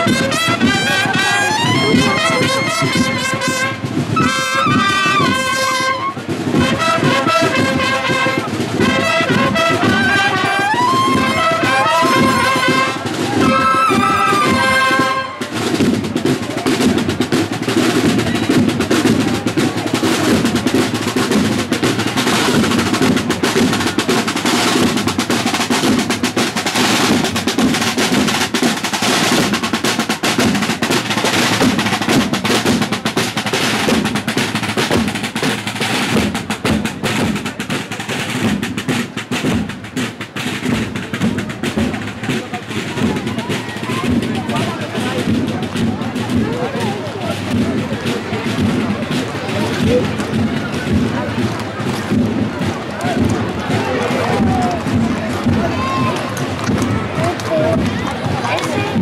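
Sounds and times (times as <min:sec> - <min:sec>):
brass horns playing march: 0:00.0 - 0:40.6
snare drums marching rhythm: 0:00.0 - 0:59.0.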